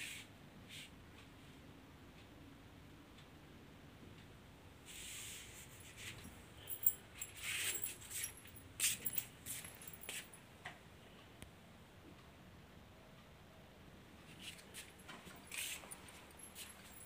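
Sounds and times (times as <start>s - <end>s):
rustles and clicks: 5.4s - 10.4s, 14.2s - 17.0s
faint metallic jingling: 5.5s - 10.5s, 14.5s - 17.0s.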